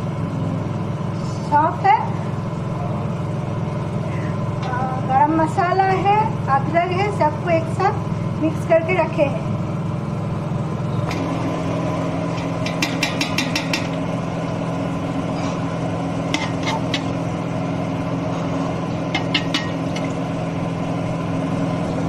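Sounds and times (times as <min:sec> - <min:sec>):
steady low hum: 0:00.0 - 0:22.0
spoon clinking against pot: 0:12.6 - 0:14.0, 0:19.2 - 0:20.1.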